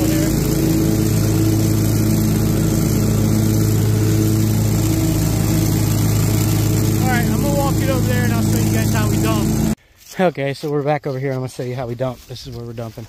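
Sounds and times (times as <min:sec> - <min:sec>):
blower driving leaves: 0:00.0 - 0:09.8
mower engine running: 0:00.0 - 0:09.8.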